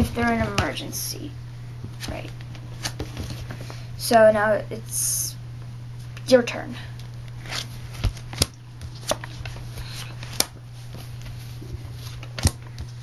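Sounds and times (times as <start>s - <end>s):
playing cards being handled: 1.8s - 3.8s, 7.3s - 13.0s.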